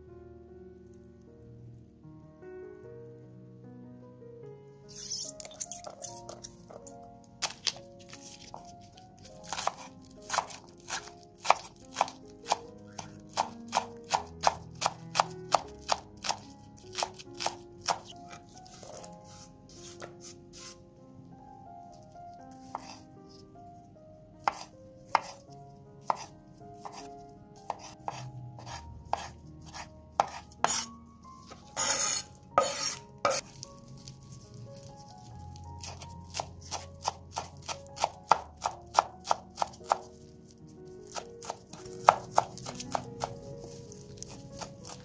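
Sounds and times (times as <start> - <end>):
knife chopping on wooden board: 9.4 - 20.8, 22.6 - 23.0, 24.4 - 25.4, 26.0 - 30.9, 31.5 - 33.4, 35.8 - 40.2, 41.0 - 45.0.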